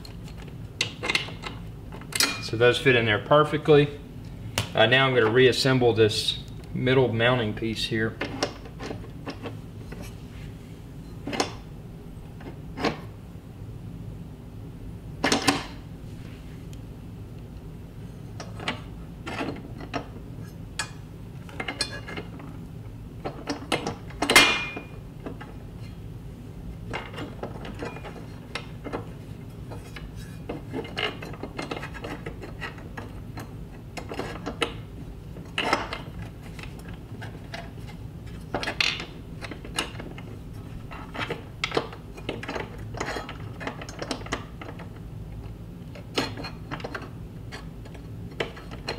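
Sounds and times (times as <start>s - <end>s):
steady low hum: 0.0s - 48.9s
metal brackets clinking: 2.1s - 2.6s.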